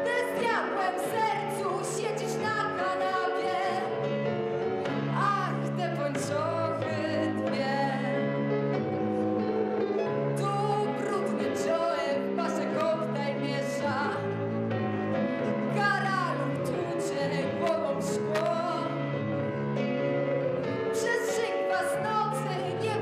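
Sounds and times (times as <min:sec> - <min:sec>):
young woman singing: 0:00.0 - 0:04.0, 0:05.1 - 0:08.3, 0:10.4 - 0:14.4, 0:15.7 - 0:19.0, 0:20.9 - 0:23.0
instrumental accompaniment of chords: 0:00.0 - 0:23.0.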